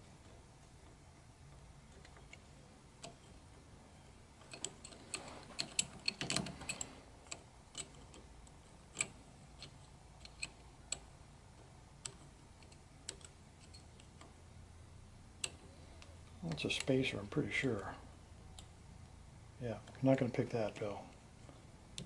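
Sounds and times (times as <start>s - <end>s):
lock pick metallic clicks: 4.4s - 11.1s, 12.0s - 14.3s.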